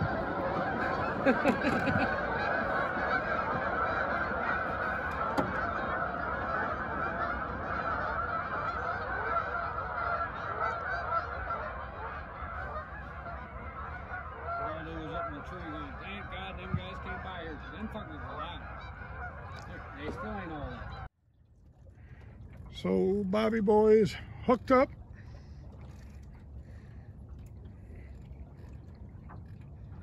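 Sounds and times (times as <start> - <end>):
flock of geese honking: 0.0 - 21.1.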